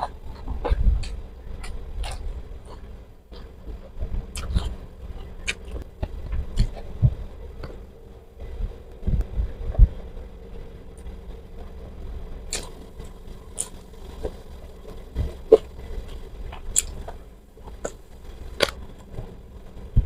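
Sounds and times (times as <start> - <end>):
chewing crunchy food: 0.0 - 7.8, 12.5 - 19.3
low steady hum: 0.0 - 20.0.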